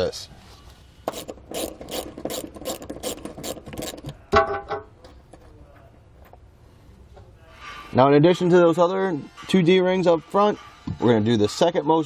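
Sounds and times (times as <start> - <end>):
ratchet wrench clicking: 1.1 - 4.1.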